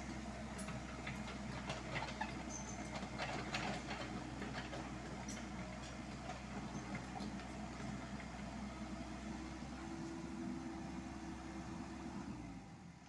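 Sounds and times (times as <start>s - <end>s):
diesel engine running: 0.0s - 13.0s
track links clicking and clanking: 0.5s - 7.6s.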